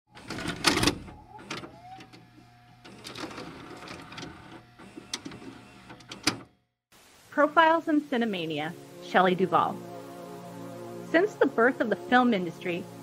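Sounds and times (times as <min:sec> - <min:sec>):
motor hum and whirring: 0:00.1 - 0:06.5
tape mechanism clunks and clicks: 0:00.1 - 0:06.5.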